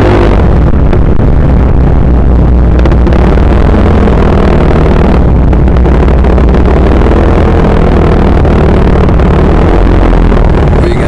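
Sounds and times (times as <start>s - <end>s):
wind noise on microphone: 0.0s - 11.0s.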